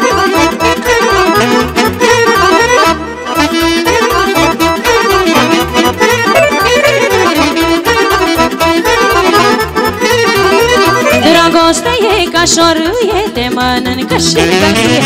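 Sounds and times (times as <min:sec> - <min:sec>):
accordion folk dance music: 0:00.0 - 0:15.0.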